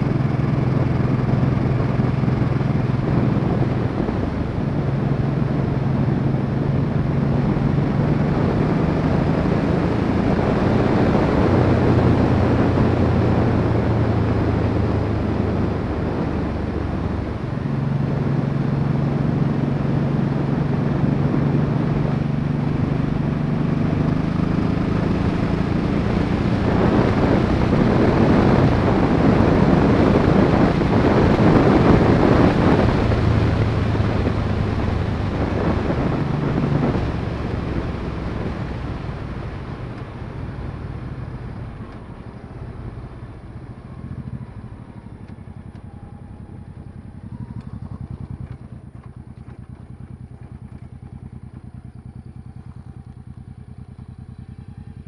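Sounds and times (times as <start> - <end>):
wind rushing: 0.0 - 41.8
motorcycle engine running: 0.0 - 55.0.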